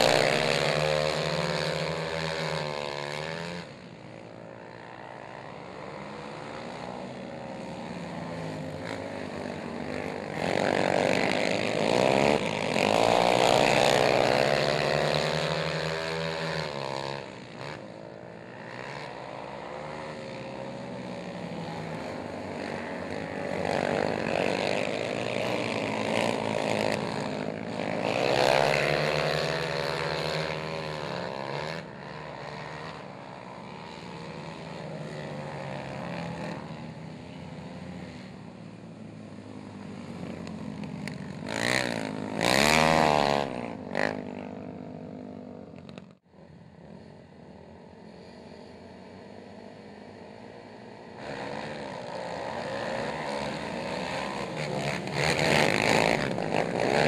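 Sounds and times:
quad engines revving: 0.0s - 57.0s
quad passing close: 46.2s - 57.0s.

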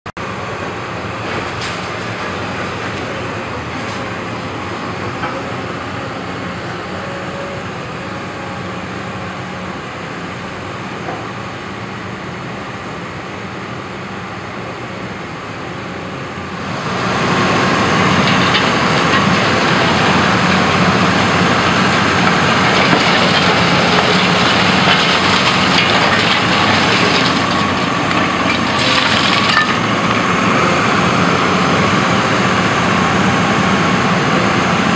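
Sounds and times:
excavator engine and hydraulics: 0.2s - 34.9s
debris cracking and crunching: 18.1s - 30.2s.

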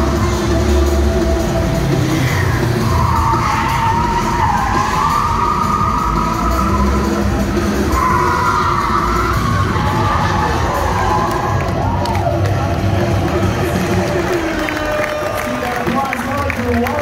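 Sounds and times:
tyres squealing: 2.0s - 11.2s.

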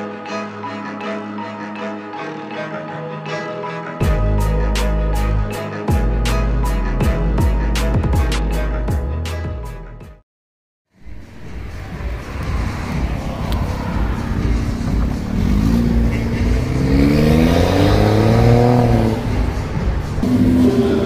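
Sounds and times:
car engine accelerating: 11.1s - 21.0s.

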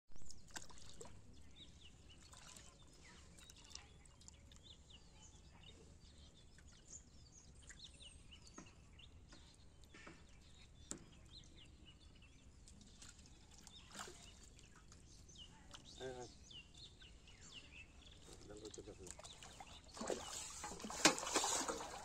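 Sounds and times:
water splashes and drips: 0.2s - 1.3s, 2.1s - 4.6s, 12.5s - 15.1s, 18.2s - 22.0s
small bird chirps: 0.2s - 20.9s.

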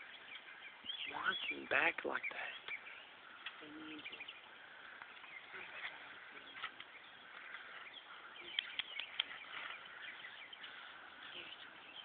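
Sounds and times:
small birds chirping: 0.0s - 12.0s
sharp snaps: 8.4s - 9.4s.

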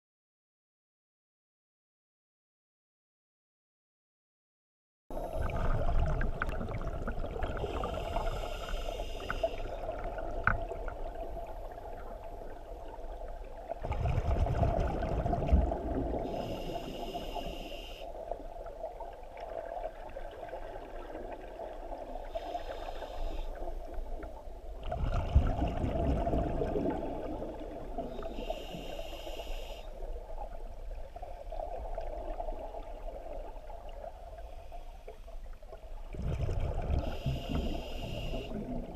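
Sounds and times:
hissing regulator inhalation: 7.6s - 9.7s, 28.4s - 29.9s.

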